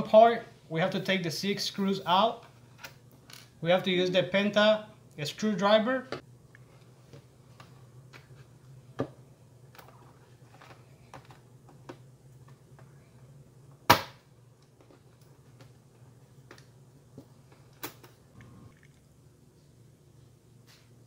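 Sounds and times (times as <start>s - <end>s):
faint low hum: 0.0s - 21.0s.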